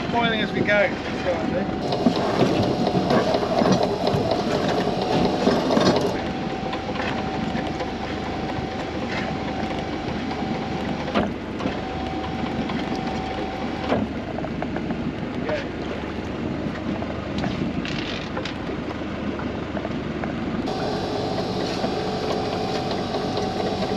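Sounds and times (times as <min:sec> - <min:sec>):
net hauler whining: 0:00.0 - 0:14.4, 0:20.6 - 0:23.9.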